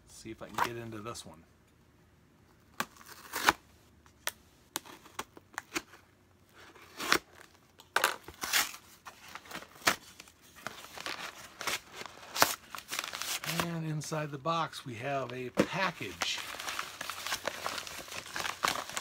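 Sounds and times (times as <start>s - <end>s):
tape and cardboard tearing: 2.7s - 3.6s, 6.8s - 10.2s, 10.8s - 13.8s.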